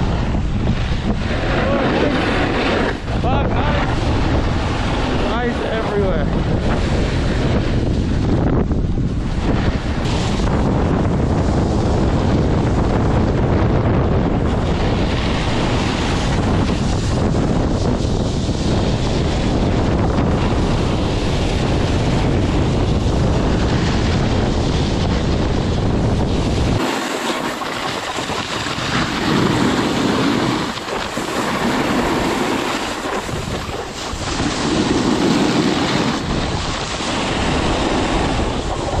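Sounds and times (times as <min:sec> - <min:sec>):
skis carving over icy snow: 0:00.0 - 0:07.9, 0:09.4 - 0:39.0
wind buffeting microphone: 0:00.0 - 0:39.0.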